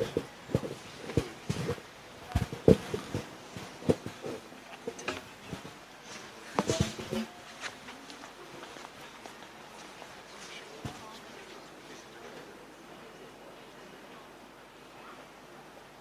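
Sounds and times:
microphone handling bumps: 0.0s - 5.8s.

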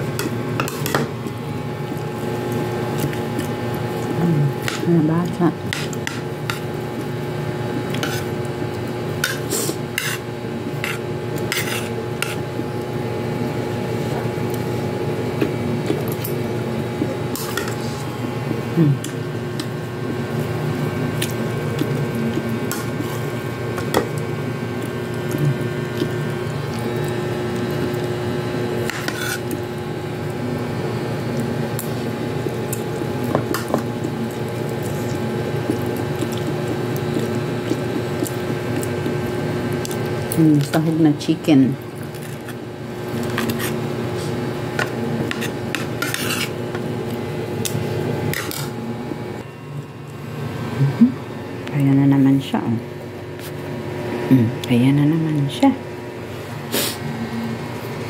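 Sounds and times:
steady hum: 0.0s - 58.0s.

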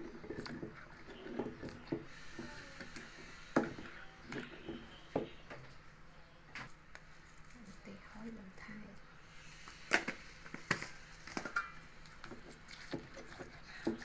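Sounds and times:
metal spoon scraping and stirring: 0.0s - 5.3s.

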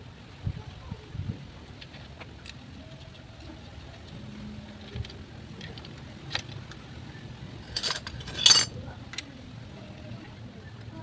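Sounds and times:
metal tools clinking: 7.6s - 8.8s.

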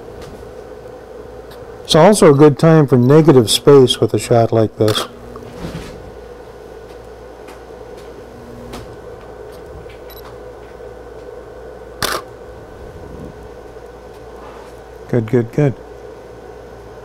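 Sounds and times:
steady background hum: 0.0s - 17.0s
camera shutter click: 12.0s - 12.2s.

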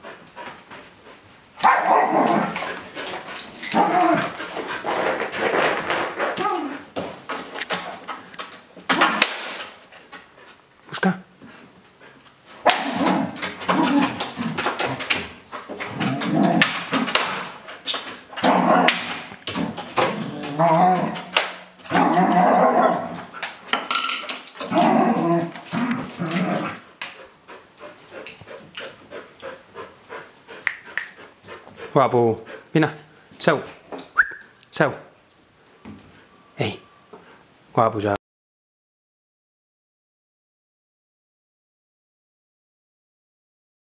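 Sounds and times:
dog barking and growling: 1.6s - 7.0s, 12.6s - 23.6s, 24.4s - 27.0s
bowl scraping on wooden floor: 2.6s - 6.4s.

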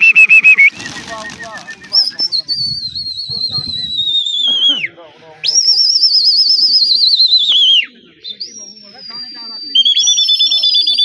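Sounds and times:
long shrill whistles: 0.0s - 4.7s, 5.5s - 11.0s.

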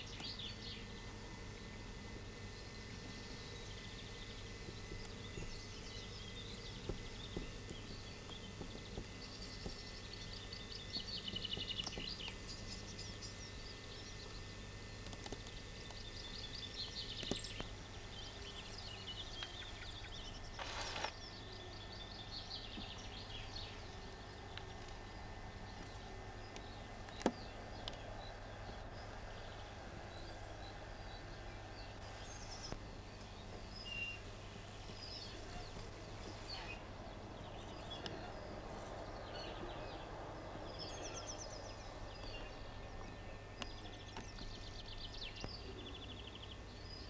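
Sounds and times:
small birds chirping: 0.0s - 47.0s
steady low hum: 0.0s - 47.0s.

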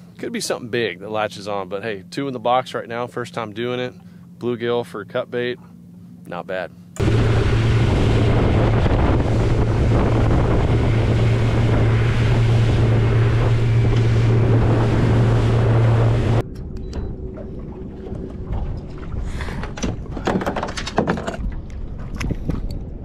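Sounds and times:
outboard motor running: 1.7s - 22.6s
wind on microphone: 7.0s - 20.2s, 21.4s - 23.0s
water rushing along hull: 7.0s - 20.4s.

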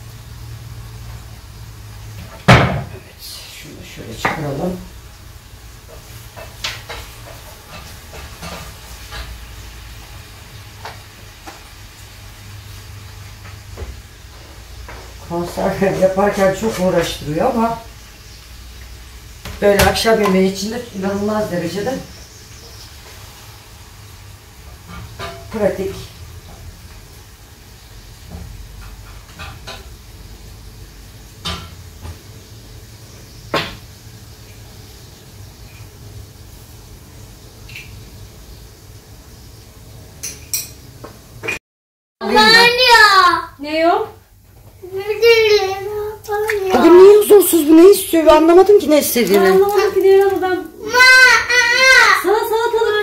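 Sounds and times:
low hum with hiss: 0.0s - 41.5s, 42.2s - 53.0s
cookware and utensils clinking: 24.8s - 26.1s, 28.8s - 29.9s, 31.4s - 31.8s, 40.2s - 41.6s, 46.7s - 50.7s.

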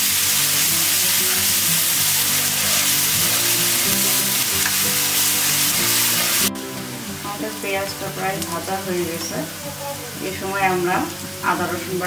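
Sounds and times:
onions sizzling in hot oil: 0.0s - 12.0s
soft background music: 0.0s - 12.0s
spatula scraping a pan: 1.2s - 6.5s.

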